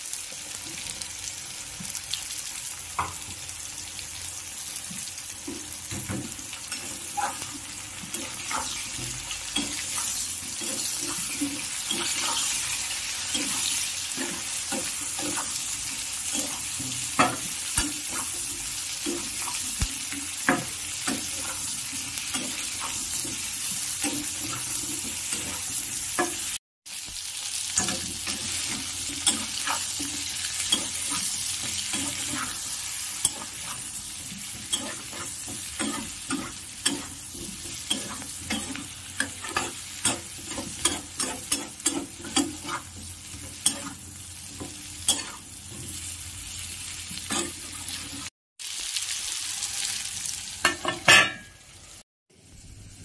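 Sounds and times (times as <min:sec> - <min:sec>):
food sizzling in oil: 0:00.0 - 0:53.0
spatula scraping a wok: 0:06.6 - 0:26.6, 0:27.7 - 0:48.3.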